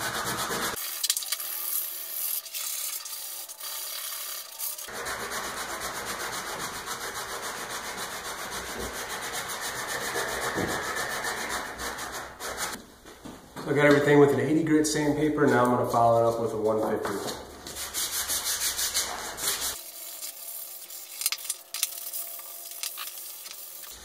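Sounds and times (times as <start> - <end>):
sandpaper scraping wood: 0.0 - 12.8, 17.6 - 24.0.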